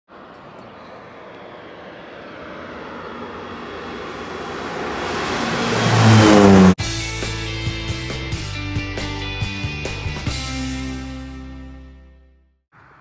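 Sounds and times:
airplane flying overhead: 0.1 - 7.0.

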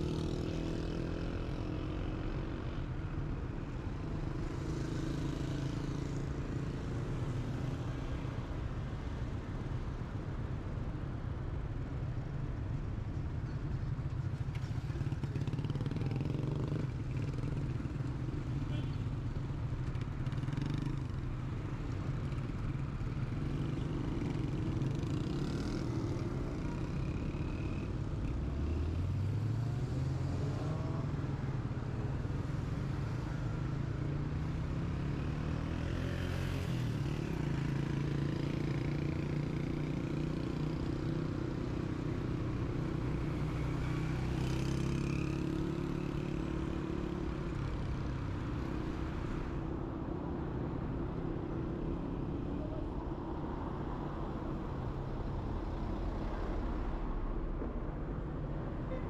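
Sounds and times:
passing vehicle engines: 13.4 - 59.0.

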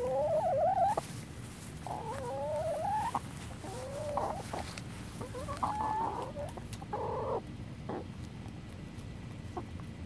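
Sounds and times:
hen calling: 0.0 - 1.1, 1.8 - 8.0.

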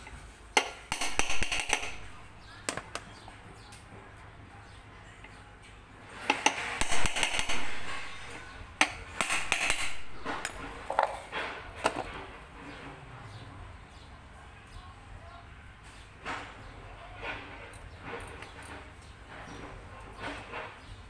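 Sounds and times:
metal tapping and clatter: 0.0 - 3.2.

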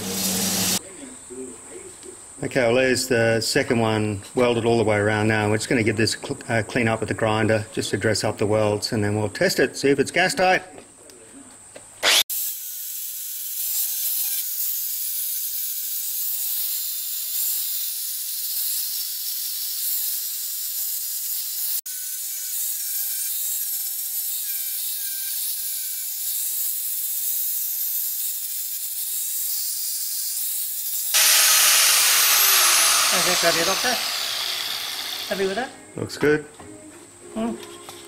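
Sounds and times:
angle grinder grinding metal: 0.0 - 0.8, 12.0 - 35.7.

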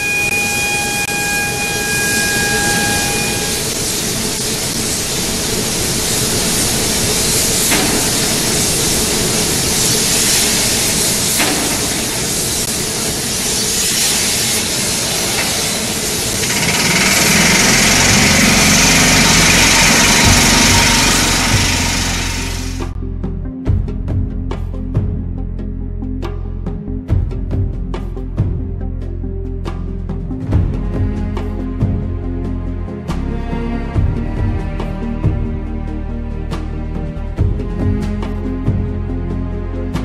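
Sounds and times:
faint high steady tone: 0.0 - 3.9
heavy machinery hiss and rumble: 0.0 - 23.0
low rhythmic pulse: 16.4 - 25.4.

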